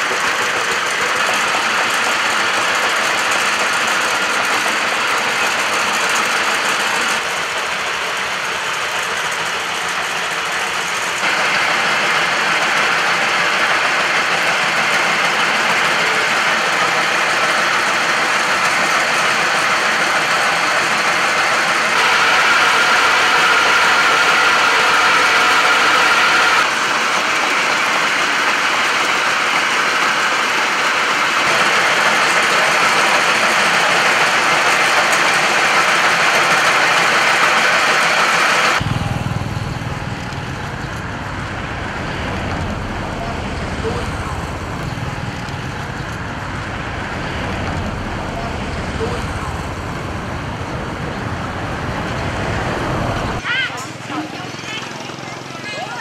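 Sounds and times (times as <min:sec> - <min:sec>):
mincing machine whirring: 0:00.0 - 0:53.4
low rumble: 0:38.8 - 0:53.4.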